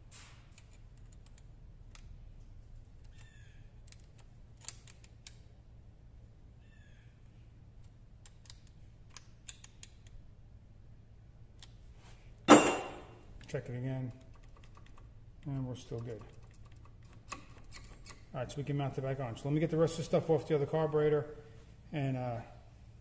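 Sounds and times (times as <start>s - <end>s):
low steady hum: 0.0s - 23.0s
small metal clicks: 0.5s - 2.2s, 3.0s - 5.5s, 7.8s - 10.2s, 13.4s - 18.3s
faint squeaky chirps: 3.1s - 3.7s, 6.6s - 7.2s.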